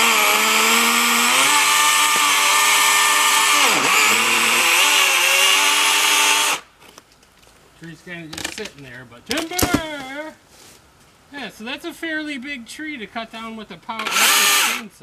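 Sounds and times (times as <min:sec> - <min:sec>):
chainsaw cutting tree trunk: 0:00.0 - 0:06.7, 0:14.0 - 0:14.8.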